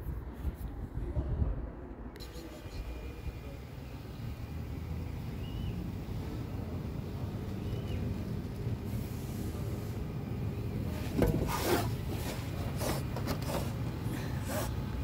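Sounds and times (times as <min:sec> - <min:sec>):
hand scraping engine parts: 0:10.8 - 0:15.0.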